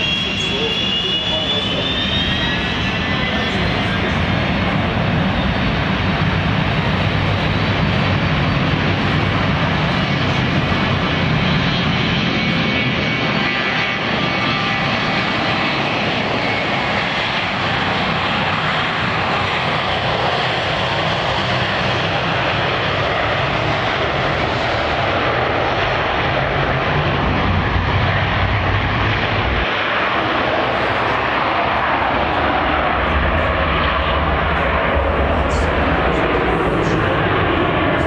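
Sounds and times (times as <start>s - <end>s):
jet engines at take-off: 0.0s - 38.0s
deep rumble: 1.4s - 14.2s, 22.8s - 38.0s.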